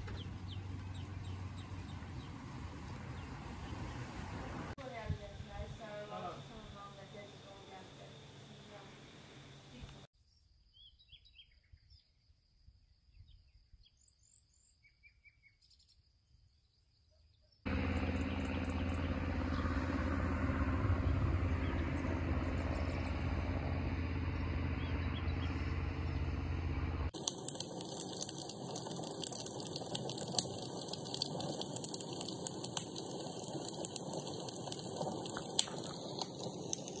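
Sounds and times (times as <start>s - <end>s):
faint bird chirps: 9.7s - 12.4s, 13.1s - 17.6s
low hum: 17.7s - 37.0s
wood fire crackling and popping: 27.1s - 37.0s.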